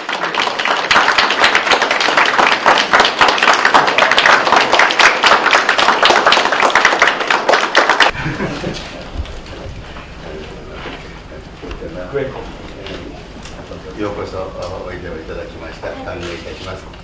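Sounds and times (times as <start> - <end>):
group applauding: 0.0 - 8.2.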